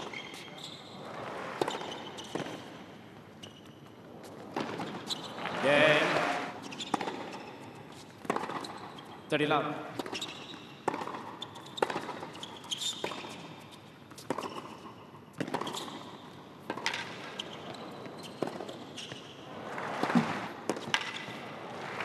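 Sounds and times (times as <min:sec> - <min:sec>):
racquets hitting tennis ball: 0:01.4 - 0:02.8, 0:04.3 - 0:09.0, 0:09.9 - 0:13.5, 0:14.1 - 0:17.5, 0:19.9 - 0:22.0
tennis ball bouncing: 0:01.6 - 0:02.8, 0:04.2 - 0:08.9, 0:09.9 - 0:13.5, 0:14.1 - 0:17.4, 0:20.0 - 0:21.4.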